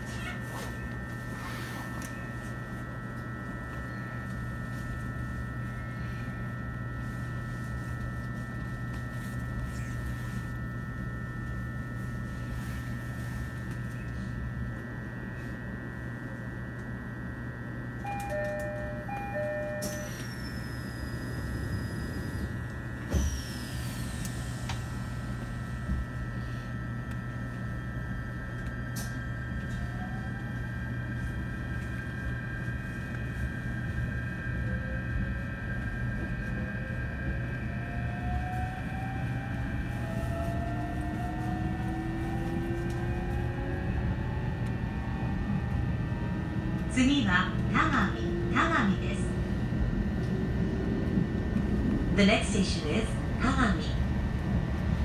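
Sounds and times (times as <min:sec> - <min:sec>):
train equipment humming: 0:00.0 - 0:55.0
traction motor whine rising: 0:18.0 - 0:27.4, 0:34.1 - 0:47.0
two-note door chime: 0:18.1 - 0:20.5.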